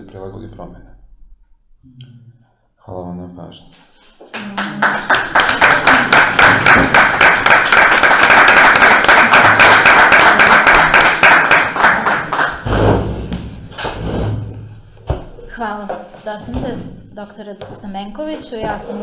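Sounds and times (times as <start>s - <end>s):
audience applauding: 4.2s - 13.2s.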